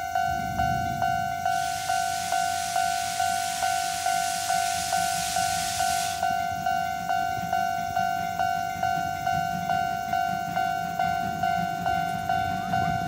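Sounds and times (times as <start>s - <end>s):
steam locomotive hissing: 0.0s - 7.4s
level crossing alarm ringing: 0.0s - 13.0s
locomotive low rumble: 0.0s - 13.0s.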